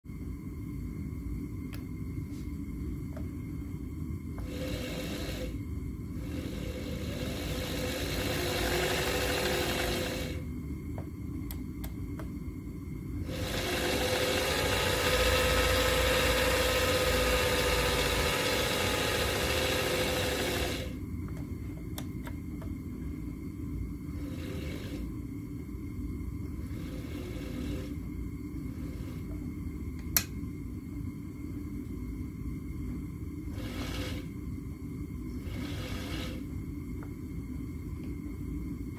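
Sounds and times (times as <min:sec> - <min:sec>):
lathe motor spinning up: 0:06.2 - 0:10.4, 0:13.3 - 0:21.0, 0:33.5 - 0:34.3.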